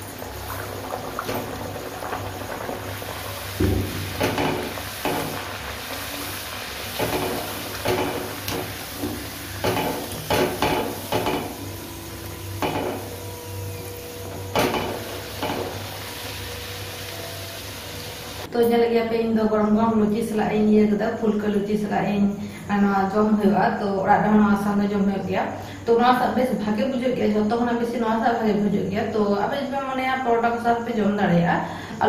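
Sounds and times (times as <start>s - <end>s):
bread sizzling in hot oil: 0.0s - 18.5s.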